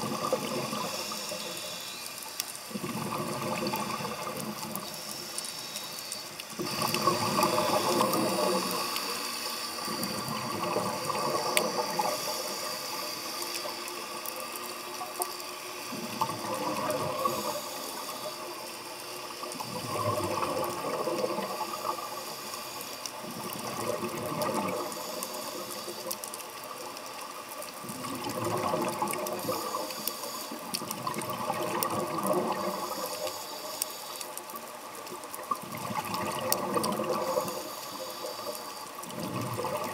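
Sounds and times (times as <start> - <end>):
exhaled bubbles surging: 0.0 - 1.7, 2.7 - 5.2, 6.5 - 9.0, 9.8 - 12.9, 15.9 - 17.8, 19.5 - 22.2, 23.3 - 25.3, 27.8 - 30.1, 30.7 - 33.2, 35.2 - 37.6, 39.0 - 39.9
steady watery hiss: 0.0 - 39.9.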